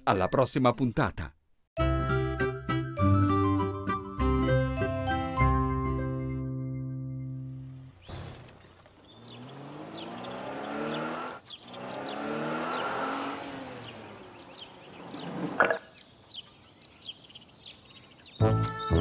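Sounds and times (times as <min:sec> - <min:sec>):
cartoon truck engine: 0:07.4 - 0:15.9
birds chirping: 0:07.9 - 0:19.0.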